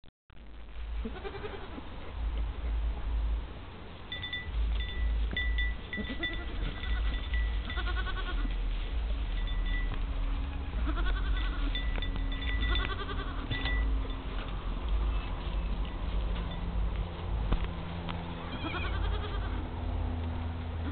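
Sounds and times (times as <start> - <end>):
goat kid bleating: 1.0 - 2.0, 5.9 - 8.6, 10.4 - 11.8, 12.6 - 13.6, 18.3 - 19.7
chime-like tones: 4.1 - 7.8, 9.3 - 10.0, 11.4 - 14.5.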